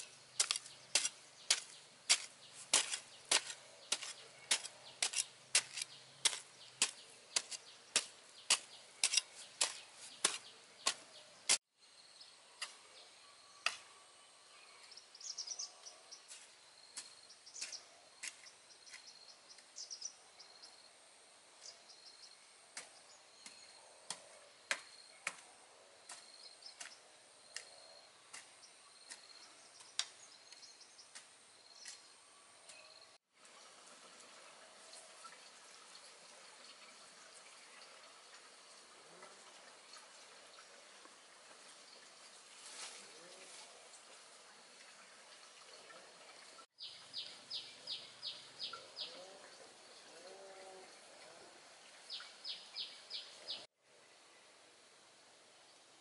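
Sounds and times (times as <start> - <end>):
hoe chopping stony soil: 0.0 - 11.6, 16.3 - 19.1, 22.8 - 30.3.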